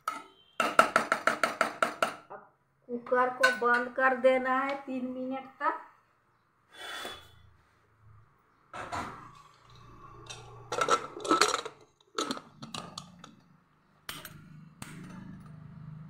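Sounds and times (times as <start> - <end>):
metal lid clinking and scraping: 9.8 - 13.4.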